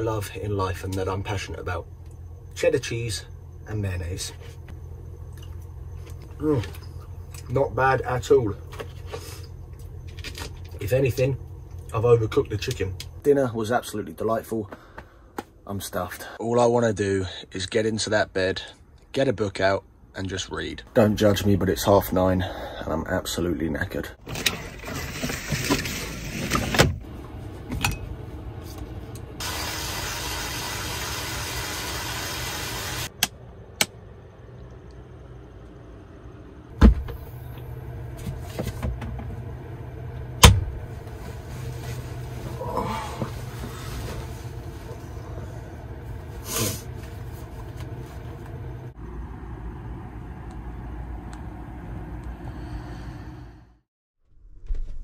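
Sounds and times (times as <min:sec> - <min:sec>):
low rumbling hum: 0:00.0 - 0:16.4, 0:24.0 - 0:31.6, 0:32.2 - 0:55.0
sink hissing: 0:29.4 - 0:33.1.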